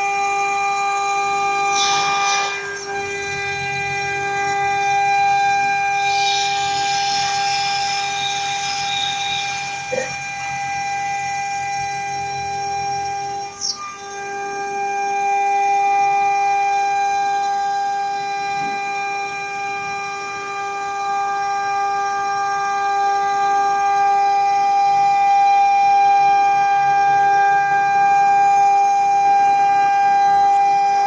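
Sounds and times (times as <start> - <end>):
router spindle high-pitched whine: 0.0 - 31.0.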